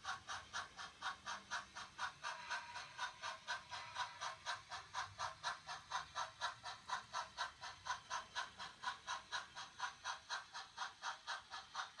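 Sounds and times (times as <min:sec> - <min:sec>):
model steam locomotive chuffing: 0:00.0 - 0:12.0.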